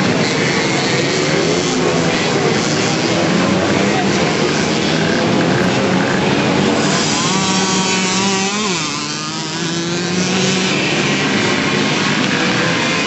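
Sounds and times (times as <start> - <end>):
racing moped engines buzzing: 0.0 - 13.0.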